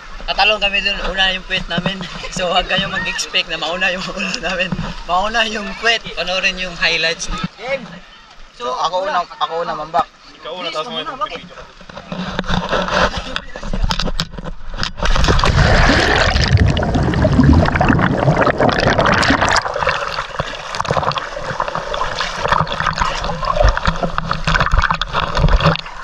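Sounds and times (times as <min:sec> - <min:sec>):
water splashing and gurgling: 0:12.1 - 0:26.0.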